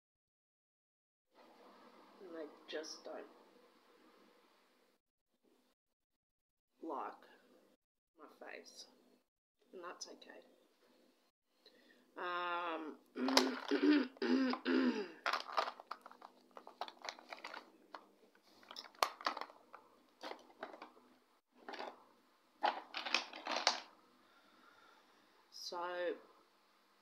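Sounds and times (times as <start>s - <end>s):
makeup products clicking and rustling: 15.2s - 21.0s, 21.6s - 22.0s, 22.6s - 23.9s.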